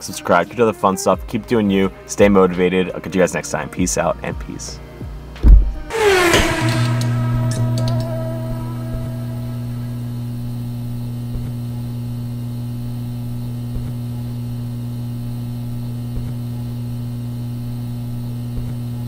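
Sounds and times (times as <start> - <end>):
steady low hum: 4.8 - 19.0
soft low thump: 5.4 - 16.7.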